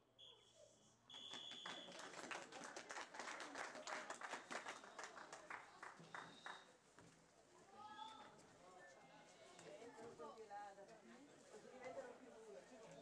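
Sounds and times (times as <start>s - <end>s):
distant crowd applause: 1.3s - 6.7s.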